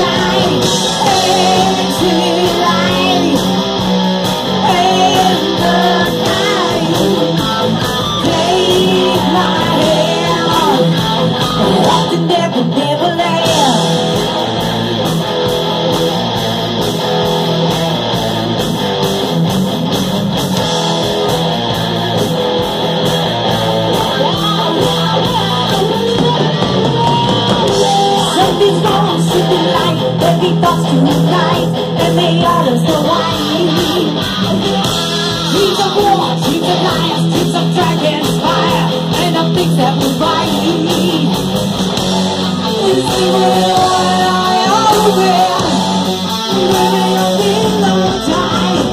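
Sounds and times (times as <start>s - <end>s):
woman singing: 0.0s - 3.6s, 4.6s - 14.0s, 24.0s - 34.2s, 35.5s - 41.4s, 42.7s - 48.9s
drums: 0.0s - 48.9s
electric guitar: 0.0s - 48.9s.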